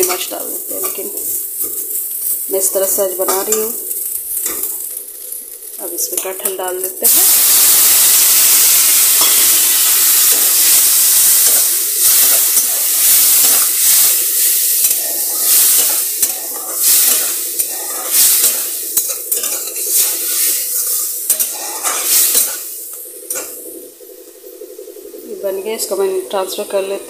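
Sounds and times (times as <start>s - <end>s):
food sizzling in hot oil: 0.0s - 27.0s
metal spatula scraping pan: 14.8s - 22.7s.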